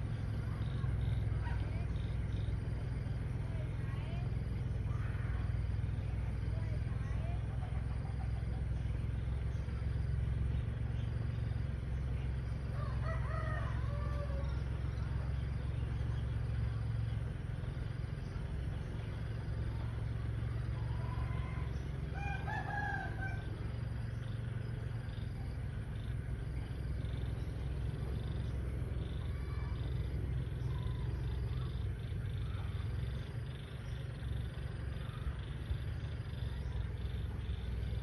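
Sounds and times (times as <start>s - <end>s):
steady low rumble: 0.0s - 38.0s
roosters crowing: 12.6s - 14.8s, 20.9s - 24.1s.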